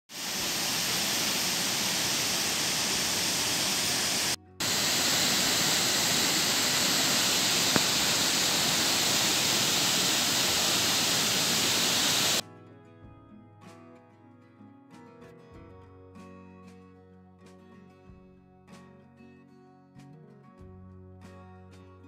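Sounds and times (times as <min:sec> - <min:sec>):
waterfall rushing: 0:00.1 - 0:12.4.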